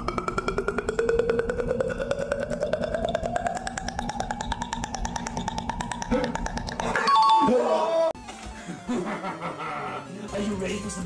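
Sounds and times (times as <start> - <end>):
fast steady ticking: 0.0 - 7.0
tone gliding upward: 0.0 - 8.0.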